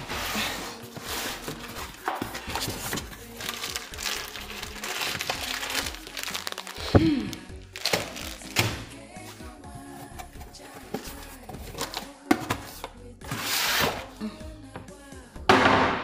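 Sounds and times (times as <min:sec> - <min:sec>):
background music: 0:00.0 - 0:16.0
plastic packets crinkling: 0:01.6 - 0:08.9.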